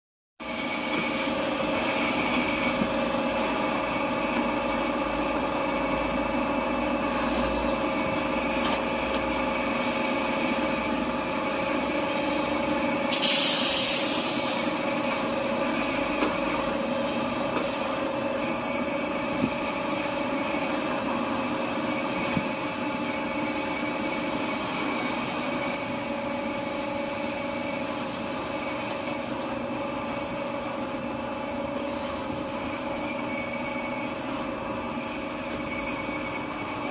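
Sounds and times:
loud hiss: 13.0 - 14.9.

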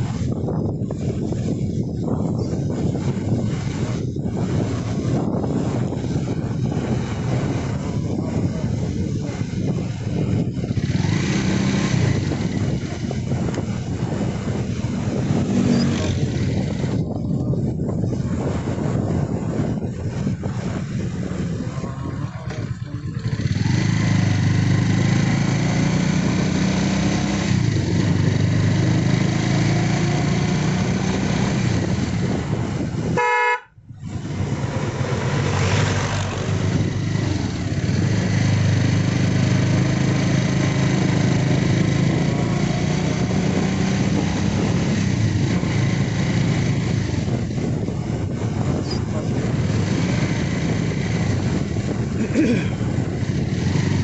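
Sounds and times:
motorcycle engine running: 0.0 - 54.0
short horn beep: 33.2 - 33.8.

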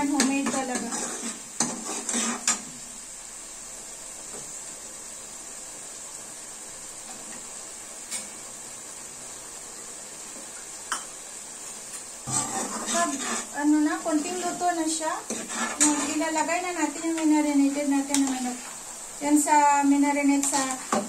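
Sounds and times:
faint hiss: 0.0 - 21.0
ladle scraping a metal pan: 0.1 - 2.7, 12.2 - 18.8, 20.4 - 21.0.

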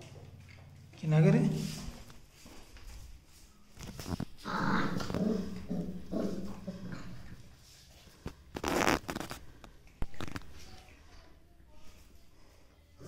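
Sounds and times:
puppies growling: 4.4 - 7.6.

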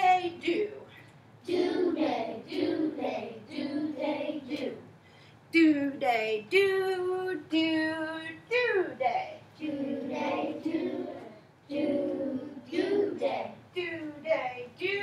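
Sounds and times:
woman singing: 5.5 - 9.4, 13.7 - 15.0.

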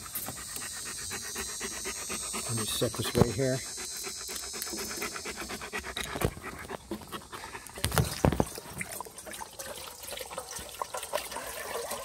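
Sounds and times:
dog panting fast: 0.0 - 8.1.

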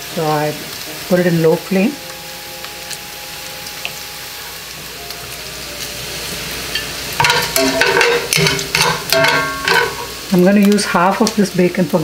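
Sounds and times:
bacon sizzling in a skillet: 0.0 - 12.0
metal tongs scraping a pan: 6.2 - 11.3.

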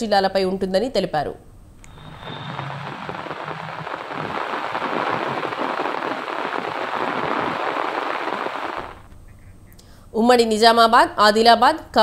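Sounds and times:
heavy rain on a street: 1.9 - 9.1.

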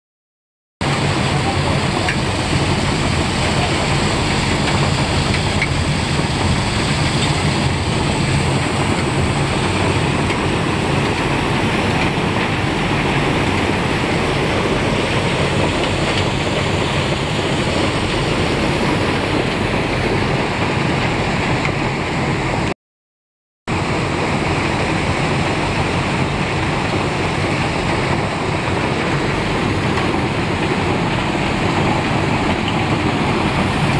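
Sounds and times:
rock-crushing machinery running: 0.8 - 22.7, 23.7 - 33.9.

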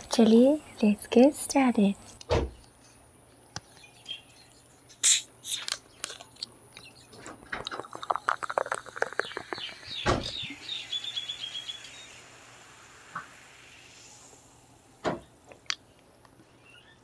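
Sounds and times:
thump: 2.3 - 2.6
bottle opening gas hiss: 4.9 - 5.8, 7.6 - 15.4
soda pouring and fizzing: 7.4 - 15.8.

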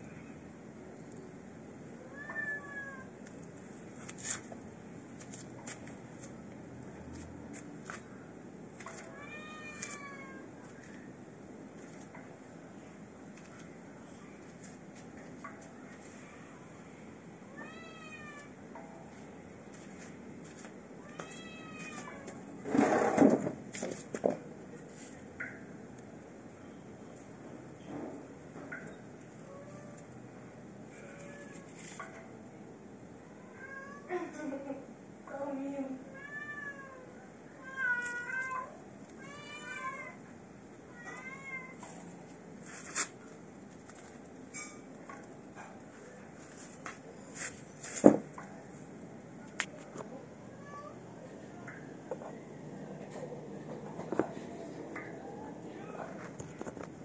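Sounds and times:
cat meowing: 2.0 - 3.1, 9.1 - 10.5.

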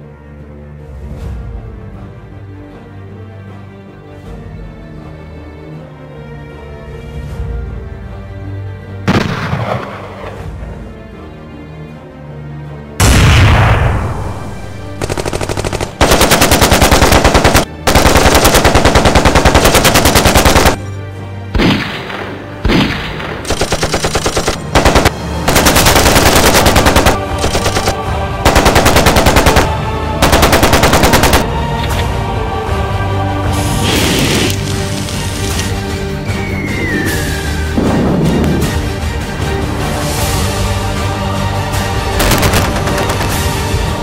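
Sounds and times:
machine-gun fire bursts: 15.0 - 20.8, 22.7 - 31.5, 42.2 - 43.5.

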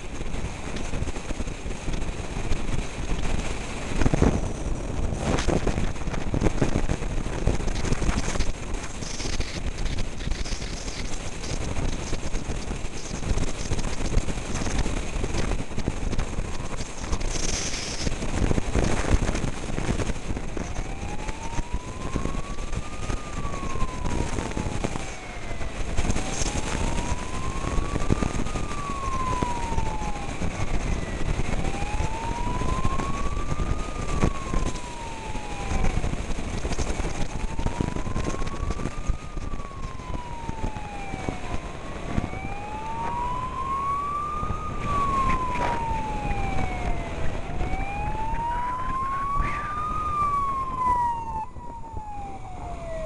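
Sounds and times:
wind and road noise: 0.0 - 53.0
emergency siren wailing: 0.1 - 53.0
second faint siren: 3.3 - 53.0.

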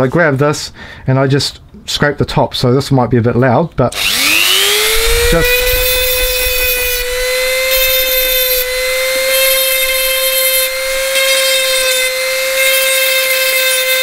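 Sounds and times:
rotary tool whining: 3.9 - 14.0.

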